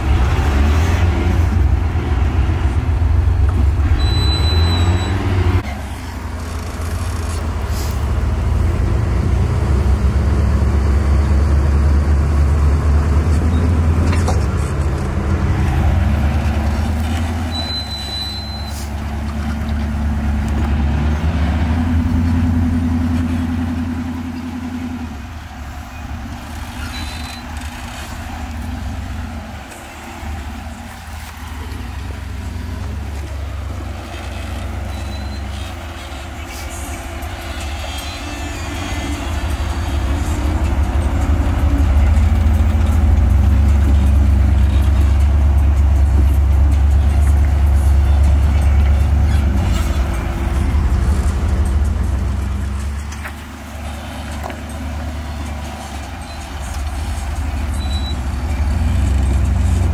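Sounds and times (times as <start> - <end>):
vehicle engine at low revs: 0.0 - 59.9
short high squeaks: 3.9 - 5.4, 17.1 - 19.0, 26.5 - 28.4, 34.0 - 39.7, 56.2 - 58.3.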